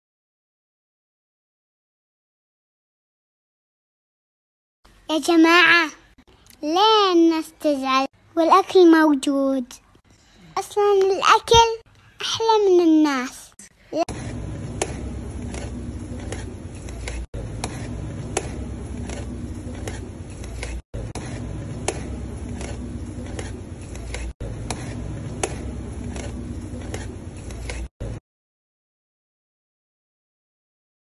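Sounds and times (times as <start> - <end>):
steady background hum: 4.9 - 28.2.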